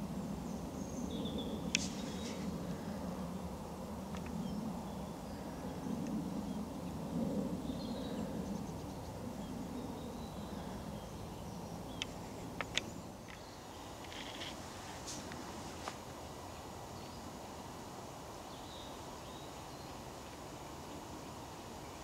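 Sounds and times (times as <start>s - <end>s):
sharp clicks: 12.0s - 13.4s.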